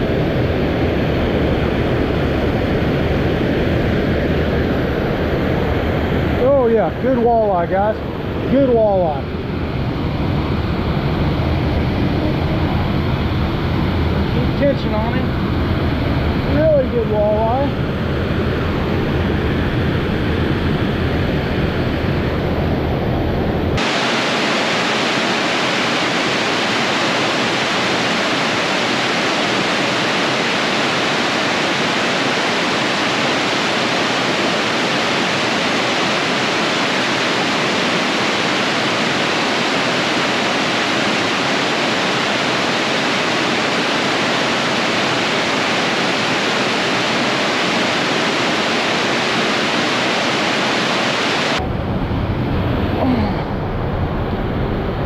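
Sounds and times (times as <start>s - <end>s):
low rumble: 0.0s - 24.0s, 51.6s - 55.0s
water rushing over a dam: 23.8s - 51.6s.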